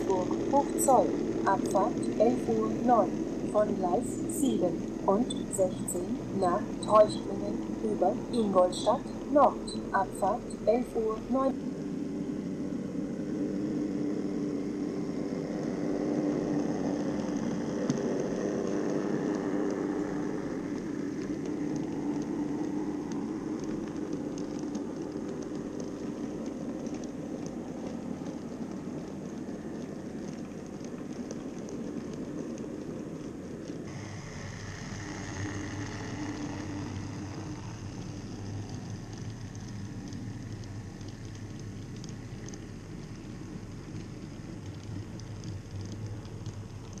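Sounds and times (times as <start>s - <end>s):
faint electric hum: 0.0s - 47.0s
model train wheels whirring on rails: 33.9s - 39.3s.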